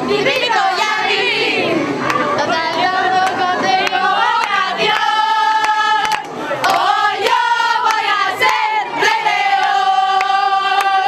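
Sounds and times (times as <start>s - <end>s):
young women singing together: 0.0s - 11.0s
hand claps: 3.2s - 8.7s, 9.6s - 11.0s.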